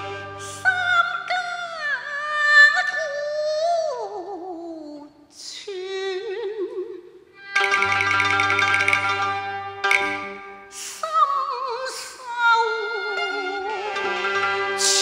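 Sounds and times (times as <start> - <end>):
instrumental ensemble: 0.0 - 0.6, 7.4 - 11.0, 12.9 - 15.0
woman singing opera with vibrato: 0.4 - 7.3, 10.7 - 15.0.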